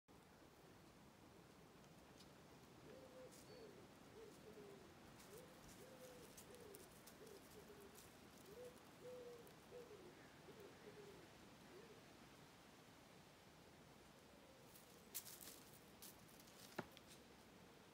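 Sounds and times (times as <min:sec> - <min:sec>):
pigeon cooing: 0:02.8 - 0:12.1.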